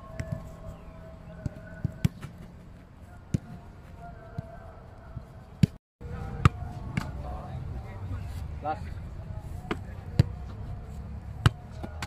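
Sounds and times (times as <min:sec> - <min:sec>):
football kicks: 0:00.0 - 0:00.6, 0:01.4 - 0:02.6, 0:03.3 - 0:03.6, 0:09.7 - 0:10.4, 0:11.4 - 0:12.0.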